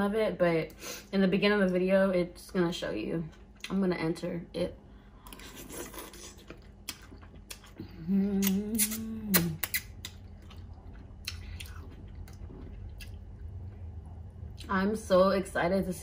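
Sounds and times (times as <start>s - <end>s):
chewing with mouth smacks: 5.2s - 14.7s
person humming mmm: 7.8s - 9.8s.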